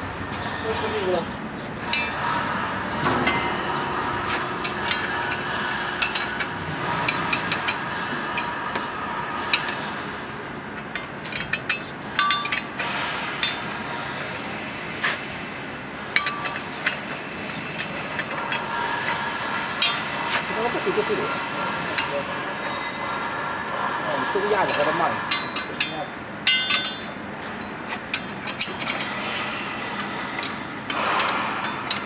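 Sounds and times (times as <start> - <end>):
metal tools clinking on steel: 1.8 - 6.5, 10.8 - 13.9, 16.1 - 18.8, 24.6 - 32.0.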